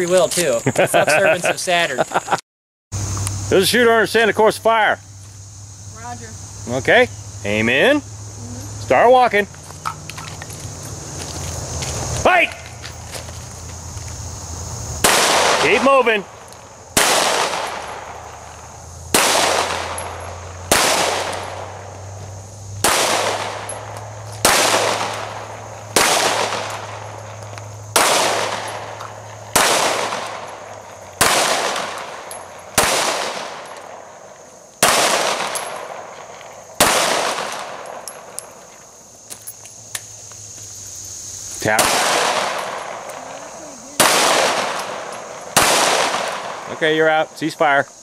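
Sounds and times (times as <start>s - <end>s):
handgun shots with echo: 19.2s - 21.7s, 22.8s - 23.8s, 26.0s - 27.0s, 29.5s - 30.6s, 34.8s - 36.0s, 44.0s - 46.7s.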